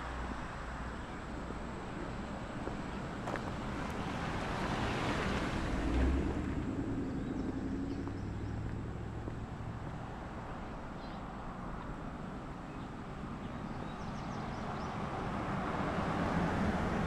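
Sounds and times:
car passing by: 0:02.6 - 0:11.2, 0:13.5 - 0:17.0.

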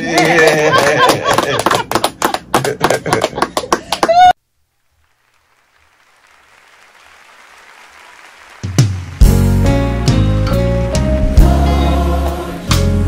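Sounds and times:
people clapping hands: 0:00.0 - 0:04.4, 0:05.3 - 0:10.2.

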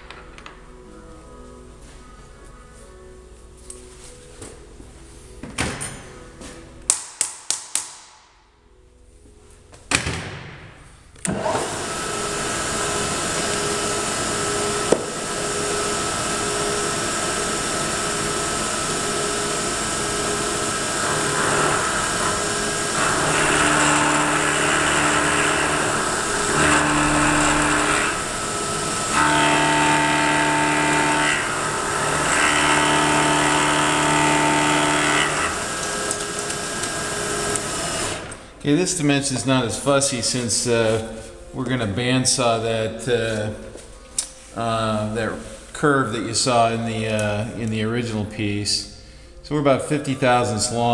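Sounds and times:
end mill cutting metal: 0:11.2 - 0:38.4
milling machine spindle running: 0:11.3 - 0:38.4.

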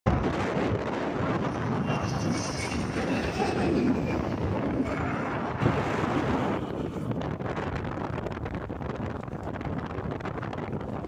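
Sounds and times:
propeller plane droning overhead: 0:00.1 - 0:08.1.

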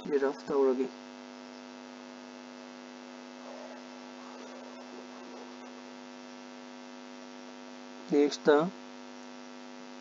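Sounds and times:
electrical mains hum: 0:00.0 - 0:10.0
faint wavering sounds: 0:01.7 - 0:07.4.

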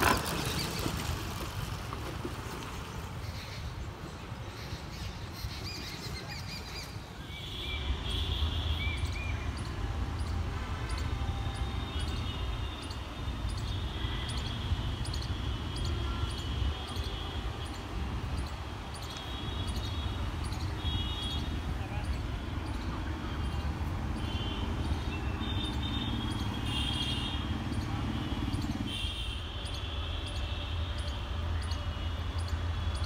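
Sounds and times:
train rumbling: 0:00.0 - 0:03.2
birds chirping: 0:02.8 - 0:33.0.

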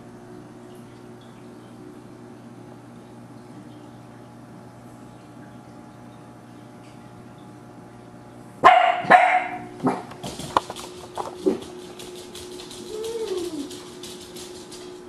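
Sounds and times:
dog barking: 0:08.6 - 0:10.1.

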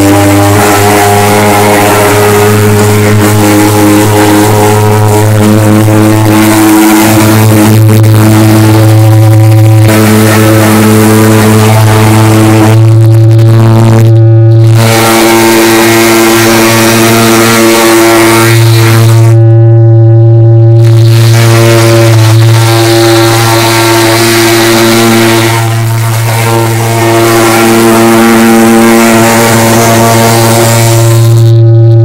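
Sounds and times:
fogging machine buzzing drone: 0:00.0 - 0:32.0.

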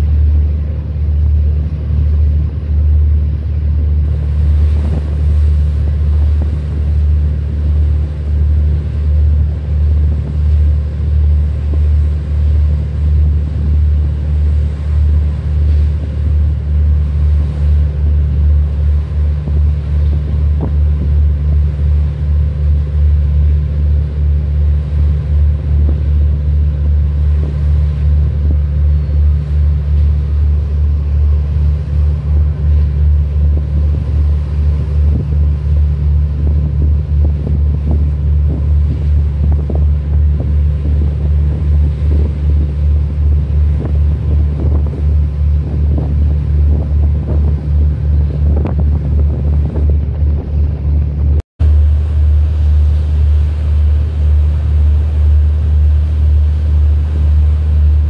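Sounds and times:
boat engine droning: 0:00.0 - 0:58.0
wind on microphone: 0:00.0 - 0:58.0.

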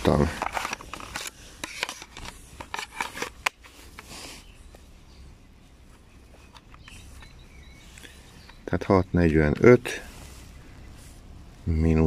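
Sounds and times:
plastic case rubbing and scraping: 0:00.0 - 0:04.1
calculator handling: 0:00.0 - 0:04.2, 0:05.9 - 0:08.6.

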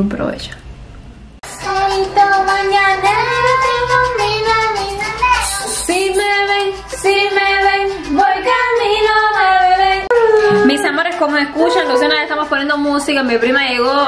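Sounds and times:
high singing voice: 0:01.4 - 0:12.8.

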